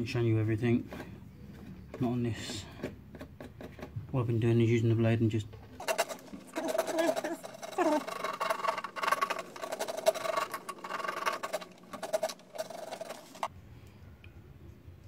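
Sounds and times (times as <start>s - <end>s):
blade scraping plastic: 5.6s - 13.5s.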